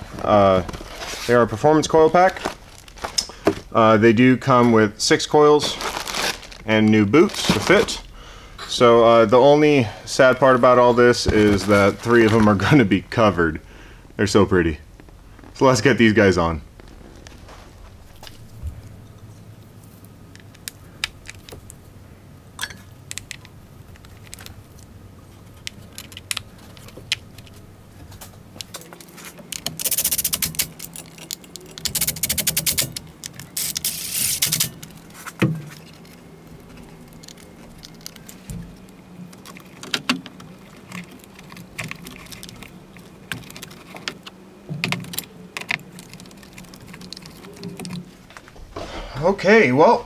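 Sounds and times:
rapid clicking: 0:29.5 - 0:34.8.

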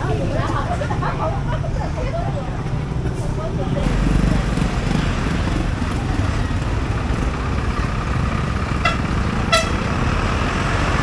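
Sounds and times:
road traffic: 0:00.0 - 0:11.0
vehicle horn beeps: 0:08.8 - 0:09.8.

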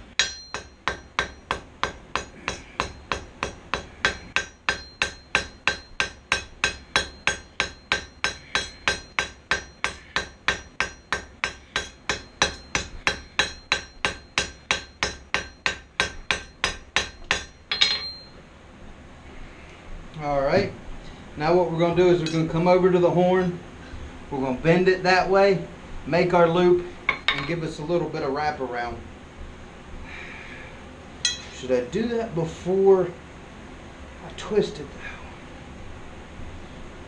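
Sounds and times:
anvil ringing: 0:00.0 - 0:18.4, 0:31.2 - 0:31.6
hammer striking steel on anvil: 0:00.0 - 0:18.4, 0:22.2 - 0:22.6, 0:27.1 - 0:27.5, 0:31.2 - 0:31.7.

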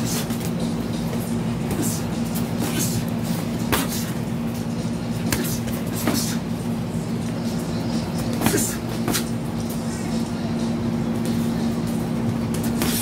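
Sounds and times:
low machine hum: 0:00.0 - 0:13.0
gloved punches hitting: 0:03.6 - 0:04.1, 0:05.2 - 0:06.4, 0:12.6 - 0:13.0.

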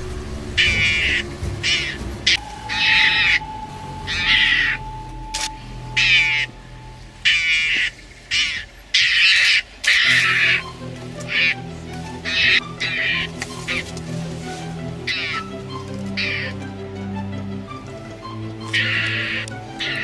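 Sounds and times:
mongoose high-pitched cries: 0:00.6 - 0:06.6, 0:07.2 - 0:10.7, 0:12.2 - 0:13.9, 0:15.1 - 0:15.5, 0:16.2 - 0:16.6, 0:18.6 - 0:20.0.

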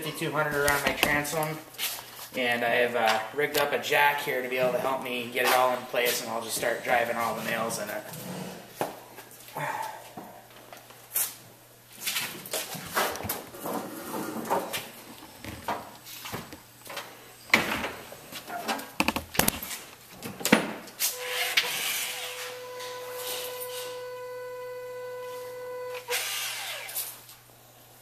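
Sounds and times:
handling knocks and clicks: 0:00.5 - 0:01.6, 0:14.6 - 0:20.8
electric motor whining: 0:21.2 - 0:27.2.

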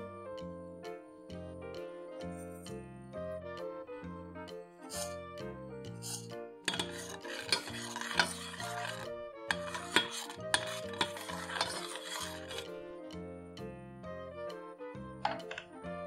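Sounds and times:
background music: 0:00.0 - 0:16.0
metal spoon stirring in pot: 0:04.9 - 0:05.2, 0:06.0 - 0:12.8.

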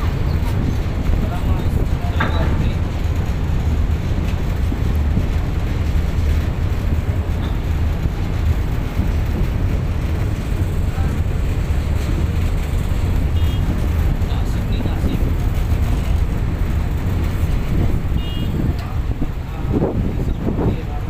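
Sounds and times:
ship engines rumbling: 0:00.0 - 0:21.0.

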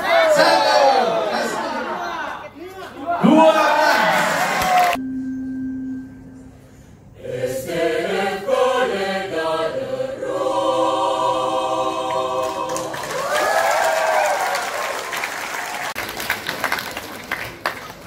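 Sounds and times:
mixed choir singing: 0:07.2 - 0:13.4.

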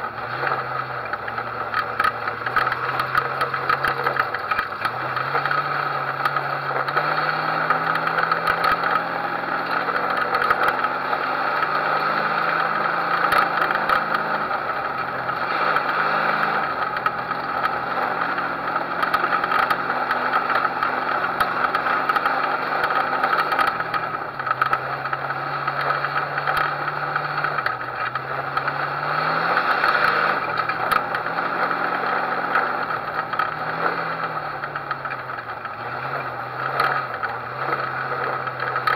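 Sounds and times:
car rattling: 0:00.0 - 0:38.9
race car engine revving: 0:00.0 - 0:38.9.

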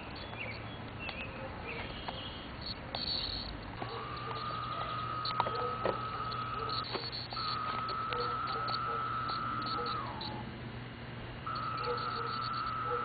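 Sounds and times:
birds chirping: 0:00.0 - 0:10.5, 0:11.5 - 0:13.0
cicada calling: 0:01.8 - 0:10.5, 0:11.5 - 0:13.0.

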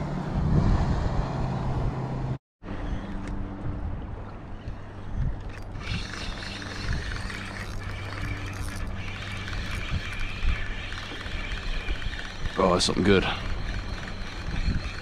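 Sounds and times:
wind noise: 0:00.0 - 0:15.0
motorboat engines humming: 0:02.7 - 0:15.0
water noise: 0:03.2 - 0:15.0.

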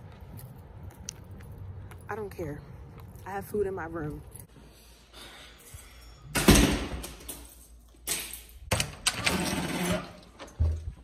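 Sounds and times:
door opening and shutting: 0:08.7 - 0:11.0.

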